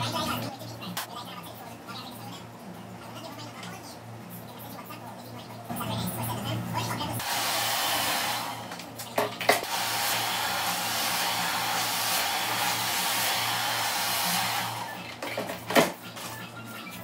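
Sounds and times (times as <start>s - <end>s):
hair dryer blowing: 7.2s - 8.9s, 9.6s - 15.0s.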